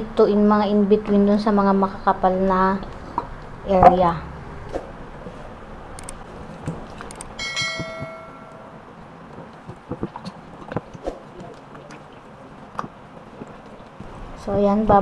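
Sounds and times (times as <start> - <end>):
glass bowl ringing: 7.4 - 8.9.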